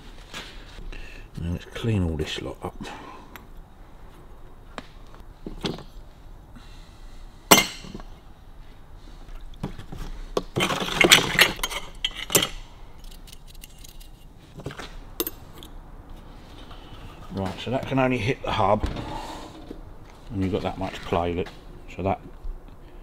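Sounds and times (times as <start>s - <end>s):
sharp metal clank: 7.5s - 8.0s
metal parts clinking into plastic tub: 10.6s - 14.1s.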